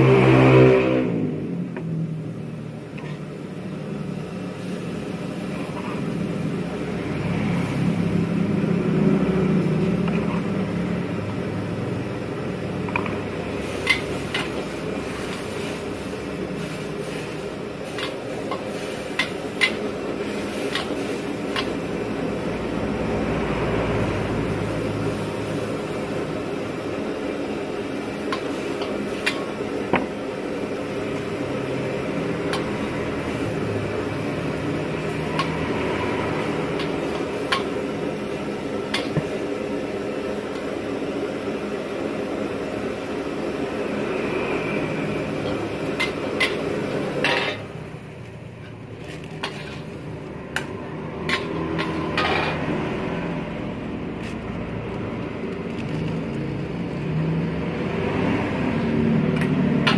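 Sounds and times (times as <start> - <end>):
gas burner rushing: 0.0 - 59.9.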